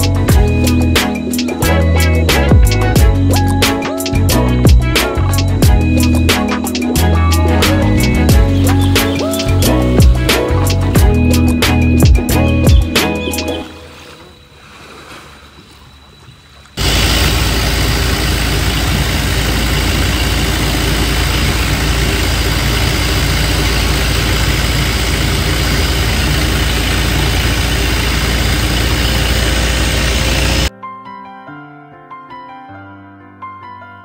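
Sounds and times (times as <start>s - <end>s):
boat engine running loudly: 16.8s - 30.7s.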